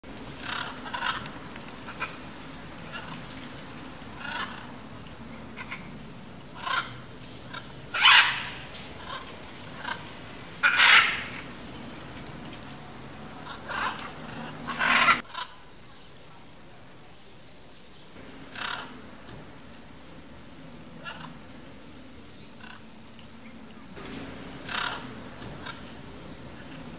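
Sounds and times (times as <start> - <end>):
low steady hum: 0.0 - 26.9
macaws squawking: 0.3 - 11.7, 12.6 - 15.6, 18.4 - 19.4, 21.0 - 21.5, 22.5 - 22.9, 24.0 - 26.9.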